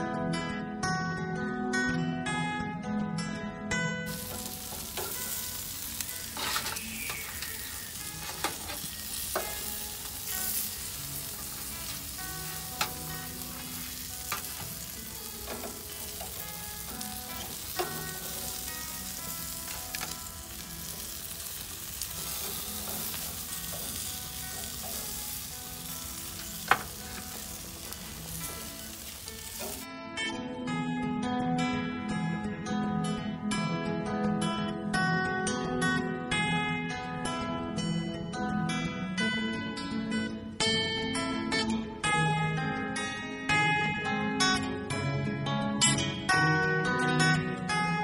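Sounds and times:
metal tongs clicking on grate: 0:04.1 - 0:29.8
chicken sizzling on a grill: 0:04.1 - 0:29.9.

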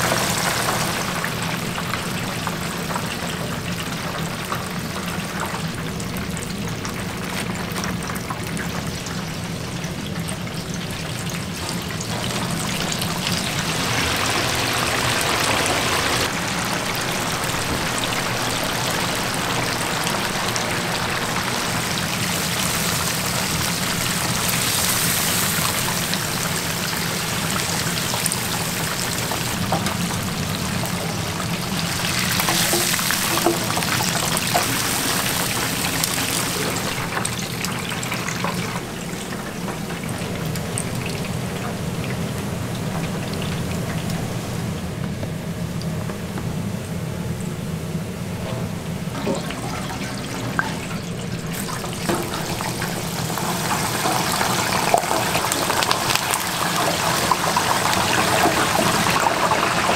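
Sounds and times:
oil bubbling and sizzling: 0:00.0 - 0:59.9.

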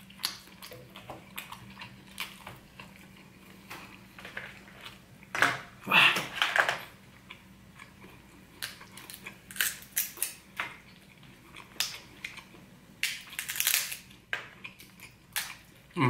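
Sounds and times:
wet chewing and smacking: 0:00.0 - 0:05.3.

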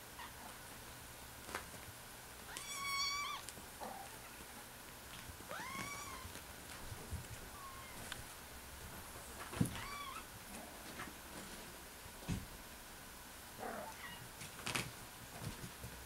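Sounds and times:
kitten meowing: 0:02.5 - 0:03.4, 0:05.5 - 0:06.2, 0:09.8 - 0:10.2.

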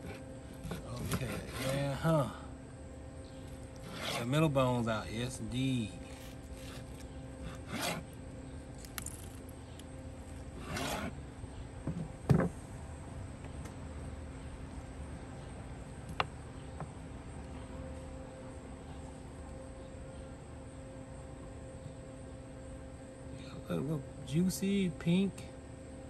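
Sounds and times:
faint steady hum: 0:00.0 - 0:26.0
knife slicing on cutting board: 0:10.6 - 0:11.1.

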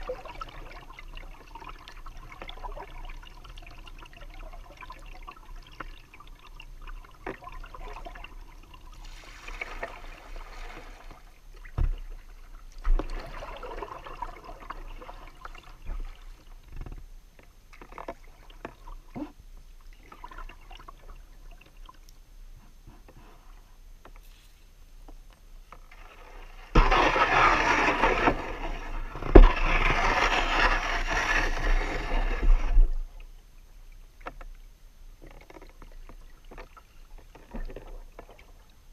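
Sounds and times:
water running along hull: 0:00.0 - 0:24.5, 0:25.6 - 0:38.9
kayak paddle strokes swishing: 0:26.2 - 0:33.0.

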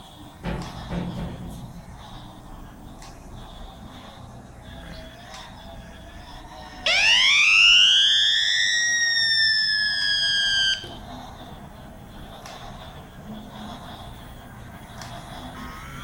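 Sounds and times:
electronic toy train whistle: 0:06.9 - 0:11.0, 0:15.6 - 0:16.0.

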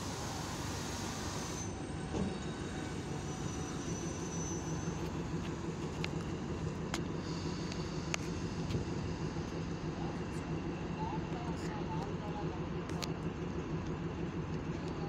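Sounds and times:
train engine and wheels rumbling: 0:00.0 - 0:15.0
faint high squeal: 0:01.0 - 0:05.2.

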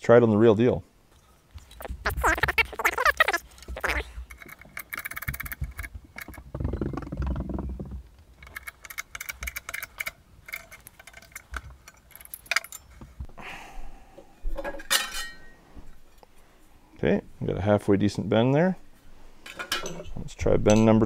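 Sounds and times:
metal clinking and rattling: 0:03.4 - 0:13.2, 0:19.4 - 0:21.0.

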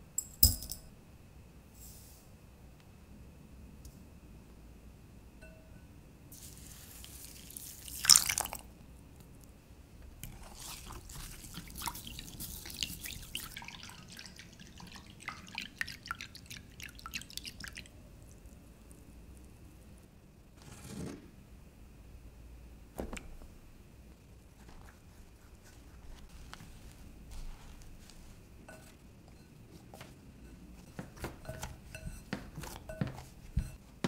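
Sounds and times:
milk pouring into glass bowl: 0:07.2 - 0:08.7, 0:10.3 - 0:19.0
whisk beating mixture in glass: 0:10.3 - 0:17.9.

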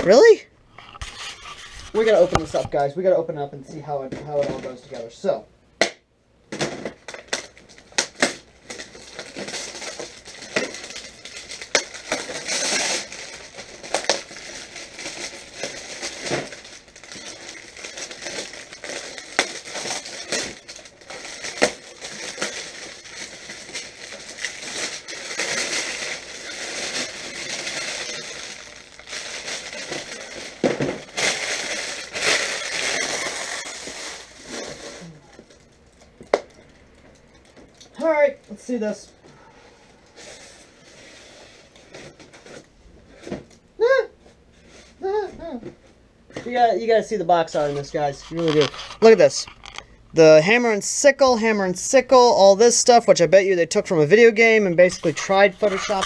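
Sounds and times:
plastic wrap crinkling: 0:01.0 - 0:02.8, 0:06.6 - 0:39.0, 0:46.5 - 0:56.0.

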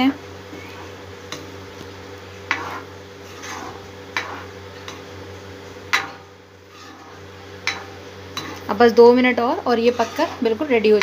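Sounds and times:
steady low hum: 0:00.0 - 0:11.0
metal spoon scraping a pan: 0:02.4 - 0:05.2, 0:05.9 - 0:11.0.

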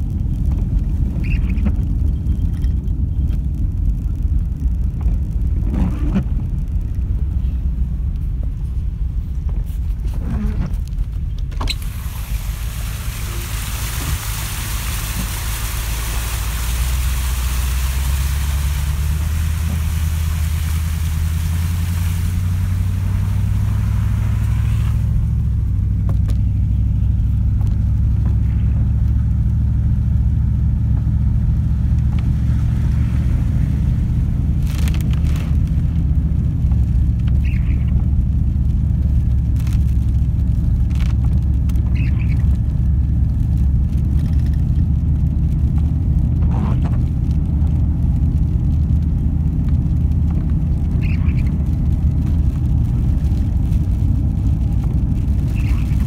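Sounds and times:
engine and road rumble: 0:00.0 - 0:56.0
hiss of wet road: 0:11.7 - 0:29.0.

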